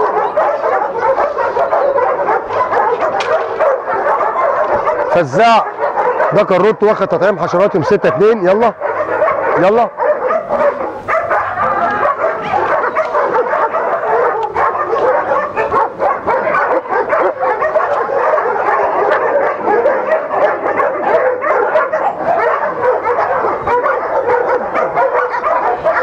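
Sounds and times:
dogs barking: 0.0 - 26.0.

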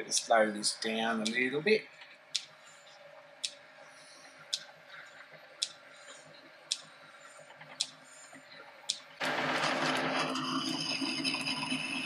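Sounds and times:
faint steady hum: 0.0 - 9.2
sharp ticks: 4.5 - 4.7, 6.7 - 6.9.

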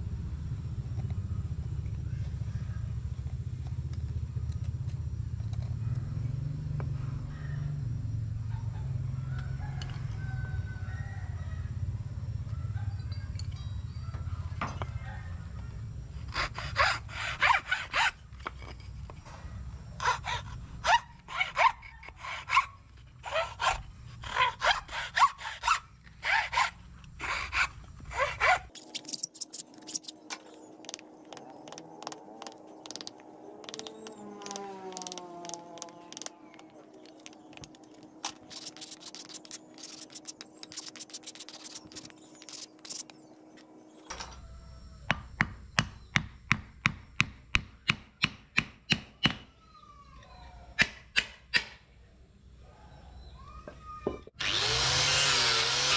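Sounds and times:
hand tool scraping: 16.2 - 43.3.

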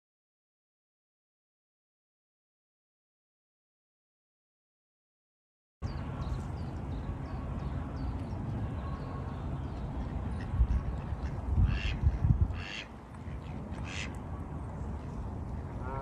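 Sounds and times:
wind rumbling on microphone: 7.6 - 16.0
harsh waterfowl calls: 10.7 - 14.1, 15.8 - 16.0.

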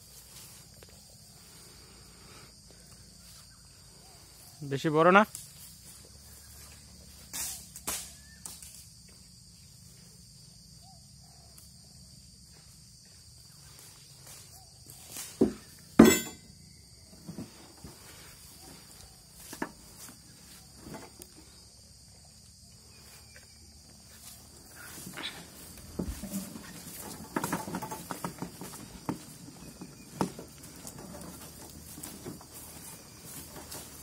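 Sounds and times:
footsteps in undergrowth: 0.0 - 1.3, 5.2 - 10.4, 17.4 - 34.0
insects droning: 0.0 - 34.0.

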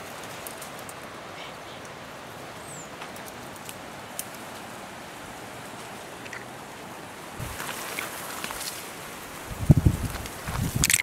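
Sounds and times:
small clicks and crackles: 0.0 - 1.1, 3.0 - 4.7, 7.5 - 8.9, 10.1 - 11.0
rustling through brush: 0.0 - 11.0
steady outdoor hiss: 0.0 - 11.0.

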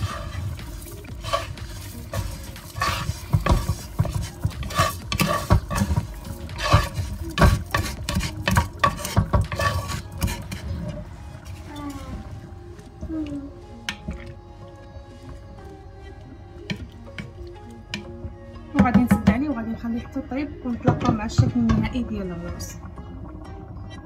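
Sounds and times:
spatula knocking on frying pan: 2.2 - 10.5, 18.8 - 19.5.

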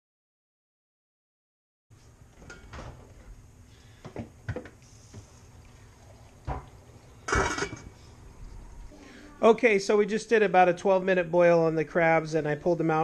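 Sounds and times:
pot lid knocking and clinking: 7.3 - 7.8.

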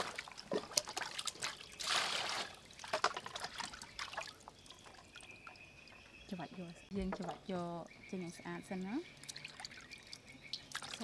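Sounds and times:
water splashing in steel bowl: 0.0 - 6.0, 9.1 - 11.0.

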